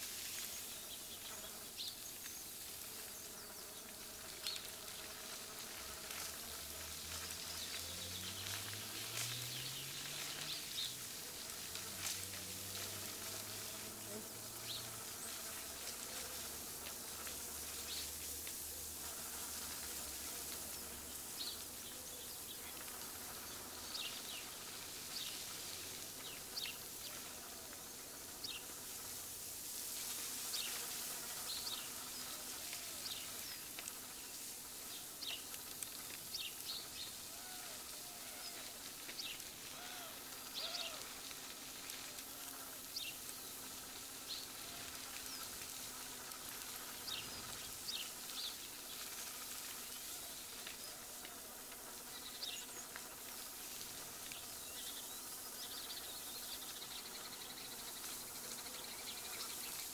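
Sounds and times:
steady background hiss: 0:00.0 - 0:59.9
lower rising-and-falling bird calls: 0:39.7 - 0:41.1.

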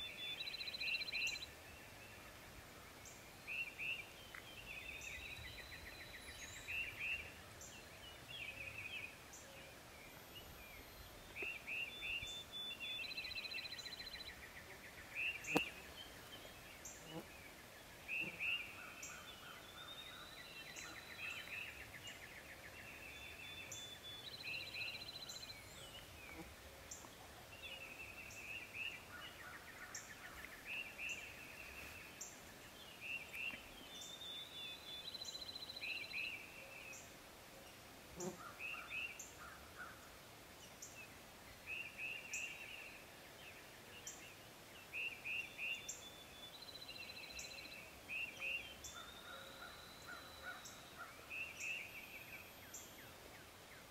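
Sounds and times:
songbirds trilling: 0:00.0 - 0:42.9.

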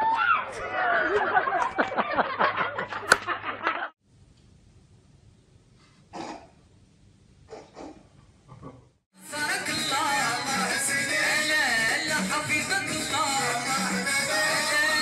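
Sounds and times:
people laughing loudly: 0:00.6 - 0:03.9.

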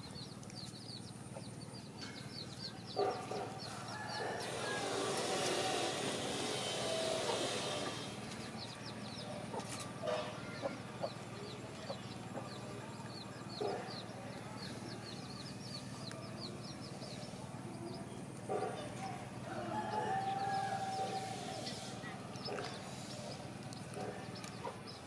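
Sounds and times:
small birds chirping: 0:00.0 - 0:25.0
chickens clucking: 0:00.4 - 0:25.0
rooster crowing: 0:03.9 - 0:07.5, 0:19.4 - 0:21.6.

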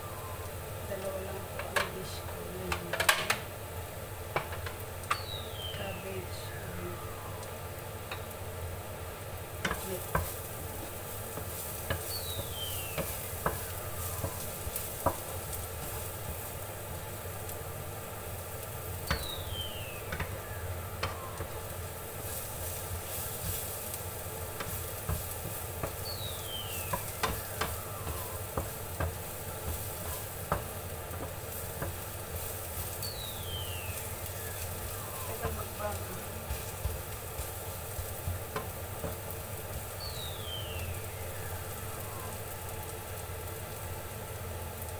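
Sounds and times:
garlic sizzling in oil: 0:00.0 - 0:44.9
spatula knocking against a pan: 0:09.6 - 0:10.4, 0:11.3 - 0:16.5, 0:24.6 - 0:32.1, 0:35.4 - 0:39.9
wooden spatula scraping a pan: 0:09.6 - 0:16.6, 0:22.0 - 0:39.9.

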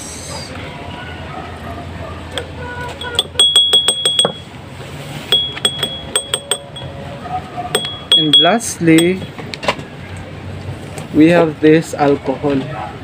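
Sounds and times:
metal spoon clinking in glass: 0:03.0 - 0:04.5, 0:05.3 - 0:07.0, 0:07.7 - 0:09.3.

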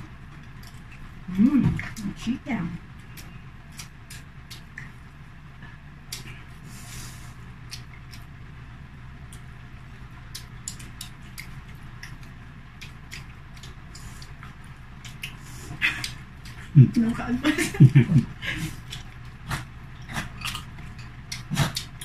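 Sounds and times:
steady low hum: 0:00.0 - 0:22.0
chewing clicks and smacks: 0:00.3 - 0:01.1, 0:03.0 - 0:05.1, 0:06.1 - 0:06.6, 0:07.7 - 0:08.3, 0:09.2 - 0:17.0, 0:18.8 - 0:22.0.

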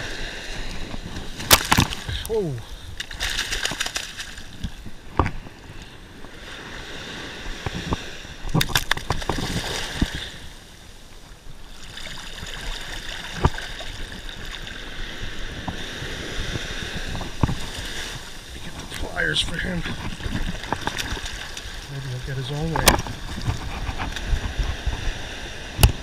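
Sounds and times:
surf washing and fizzing: 0:00.0 - 0:26.0
fish splashing and knocking: 0:01.2 - 0:02.4, 0:03.0 - 0:05.4, 0:08.4 - 0:10.2, 0:18.8 - 0:21.7.

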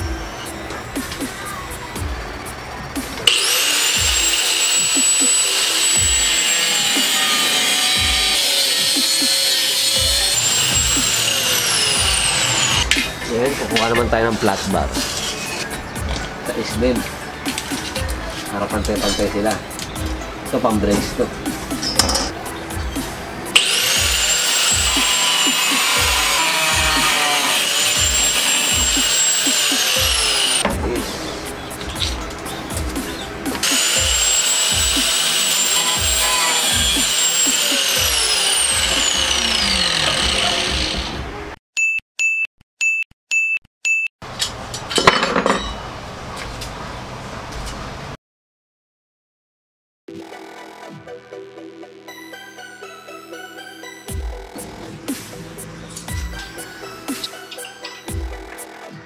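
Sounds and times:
angle grinder cutting steel: 0:03.0 - 0:15.8, 0:20.5 - 0:30.6, 0:31.4 - 0:41.3.

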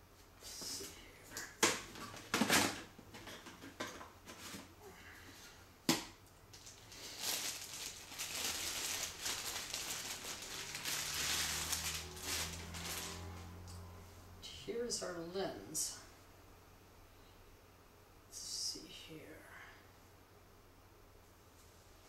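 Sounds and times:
plastic bag crinkling: 0:06.5 - 0:13.5.

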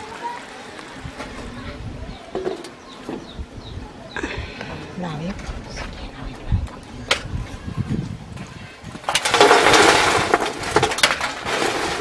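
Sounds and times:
embers clattering on metal tray: 0:09.0 - 0:12.0.

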